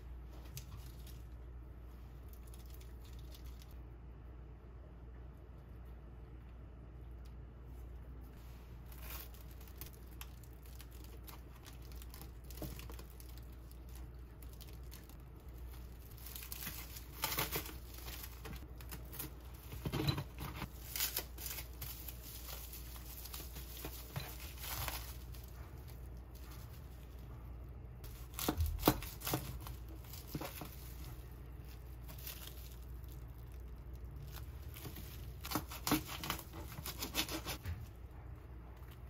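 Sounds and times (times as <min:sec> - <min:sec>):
plastic cling wrap crinkling: 0:00.3 - 0:03.8, 0:08.5 - 0:37.6.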